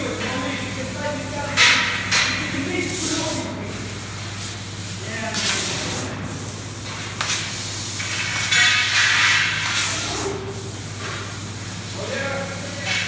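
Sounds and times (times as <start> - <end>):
low machine hum: 0.0 - 8.4.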